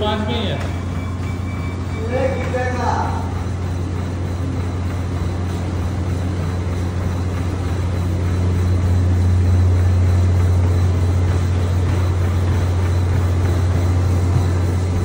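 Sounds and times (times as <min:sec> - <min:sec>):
treadmill belt whirring: 0:00.0 - 0:15.0
treadmill motor hum: 0:00.0 - 0:15.0.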